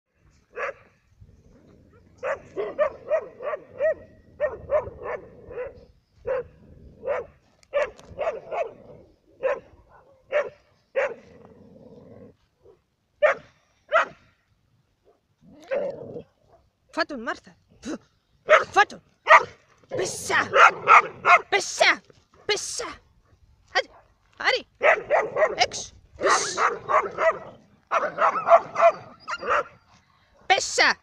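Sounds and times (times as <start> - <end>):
dog barking: 0.5 - 0.9, 2.2 - 8.8, 9.4 - 11.3, 13.2 - 14.2, 15.1 - 16.6, 18.5 - 21.5, 24.8 - 29.8.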